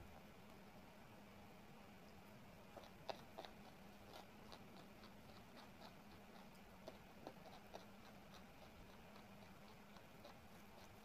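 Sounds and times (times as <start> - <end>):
chewing: 2.7 - 11.0.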